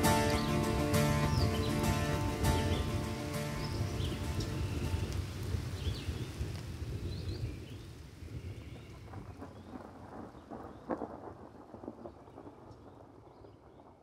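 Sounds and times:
rain pattering: 0:00.0 - 0:14.0
low rumble of thunder: 0:03.7 - 0:14.0.

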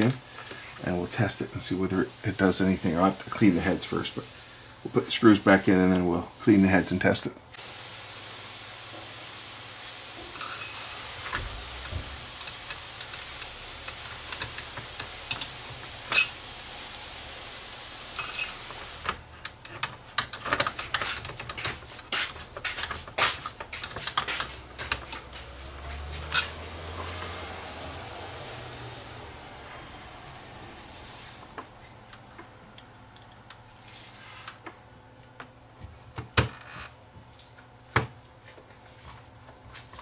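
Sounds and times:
steady hiss: 0:00.0 - 0:34.7
scraping on metal: 0:22.6 - 0:27.4.

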